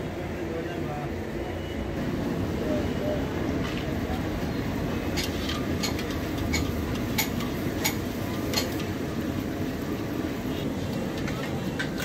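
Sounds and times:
bread deep-frying in oil: 2.0s - 12.0s.

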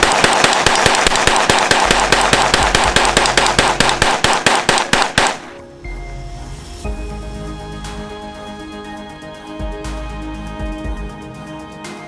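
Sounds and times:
rifle firing rapid shots: 0.0s - 5.6s.

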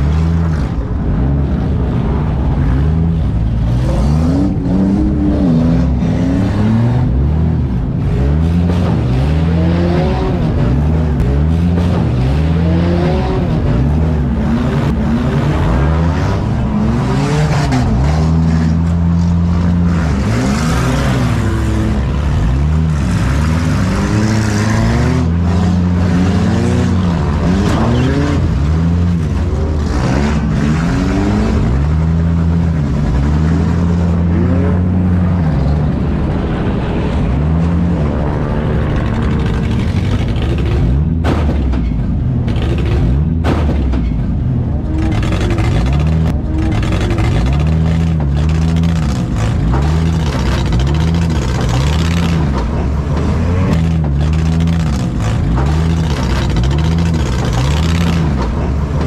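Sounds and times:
car engines revving hard: 0.0s - 59.0s.

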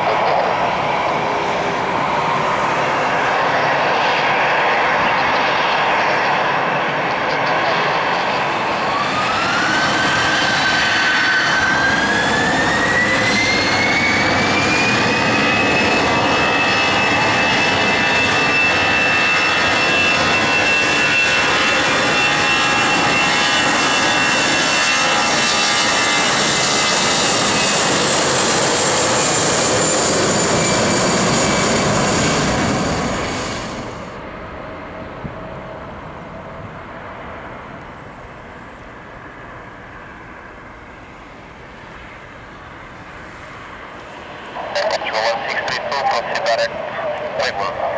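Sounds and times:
loud jet roar: 0.0s - 37.3s, 42.8s - 47.9s
jet engine whine: 0.0s - 47.9s.

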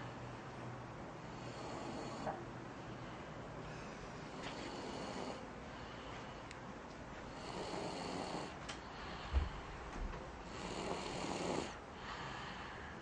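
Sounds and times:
boy snoring: 1.3s - 2.4s, 4.3s - 5.4s, 7.3s - 8.6s, 10.4s - 12.5s.

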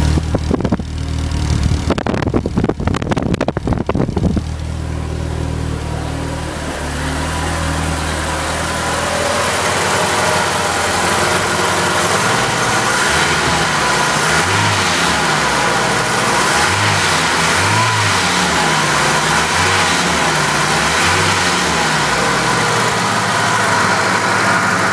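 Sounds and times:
car engine idling: 0.0s - 24.9s.

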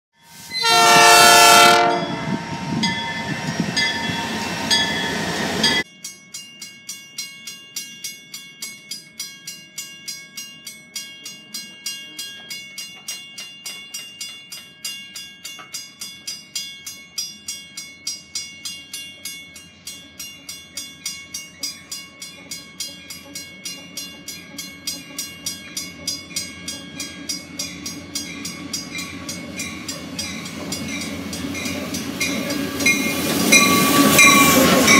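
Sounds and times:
crossing bell ringing: 0.2s - 34.9s
locomotive horn: 0.4s - 2.4s
train rumbling: 0.4s - 5.8s, 21.2s - 34.9s.

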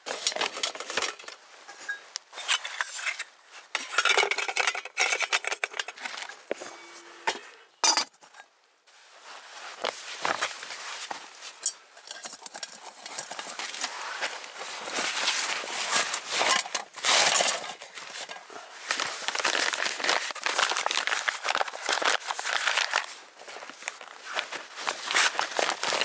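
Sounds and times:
cloth rustling: 8.9s - 11.6s, 13.6s - 26.0s
gear clinking against metal pot: 11.6s - 13.8s.

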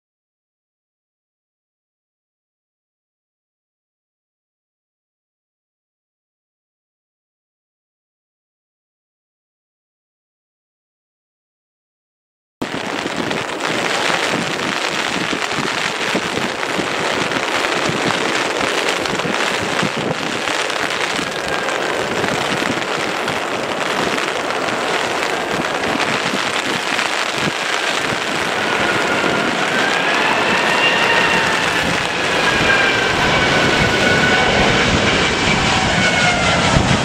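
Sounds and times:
heavy rain hissing: 12.6s - 35.7s
jet engines whining: 12.6s - 37.0s.

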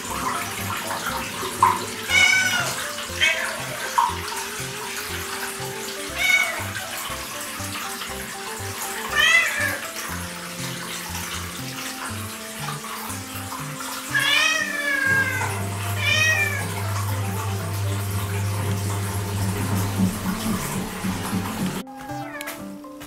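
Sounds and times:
cat meowing: 2.0s - 3.8s, 6.1s - 6.7s, 9.1s - 9.8s, 14.1s - 16.7s, 21.8s - 22.8s.

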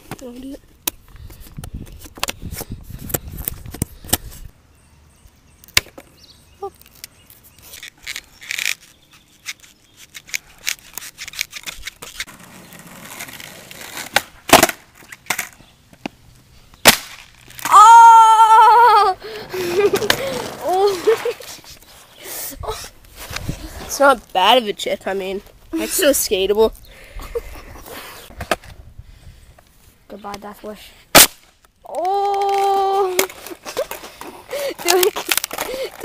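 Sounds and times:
skateboard clacking on asphalt: 11.6s - 16.2s, 19.5s - 21.5s.

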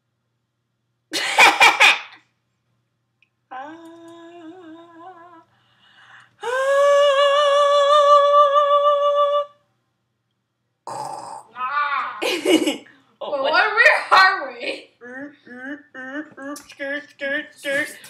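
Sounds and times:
girl humming and singing notes: 3.5s - 5.5s, 6.4s - 9.6s, 15.0s - 18.0s
girl yelling: 11.6s - 12.2s.

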